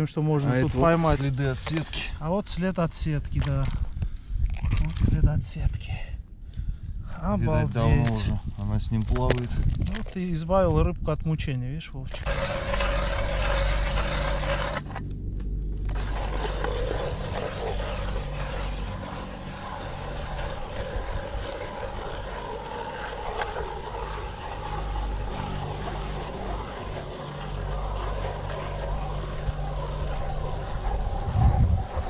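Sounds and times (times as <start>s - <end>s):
ice auger grinding: 0.5s - 2.2s, 12.1s - 31.6s.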